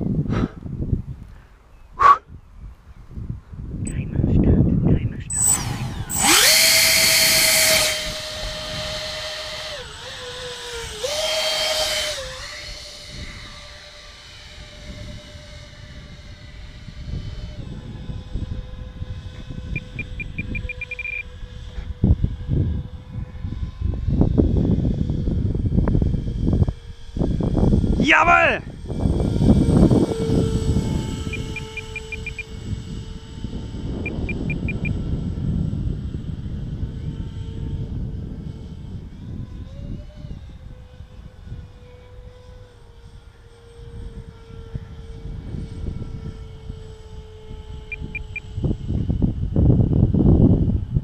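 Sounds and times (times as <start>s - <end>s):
electric ducted fans whining: 0.0s - 51.0s
short high electronic beeps: 19.8s - 21.2s, 31.3s - 32.4s.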